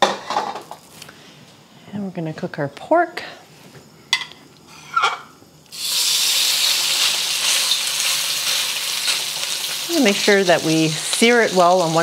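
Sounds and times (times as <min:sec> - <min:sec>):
meat sizzling in a wok: 0:04.7 - 0:12.0.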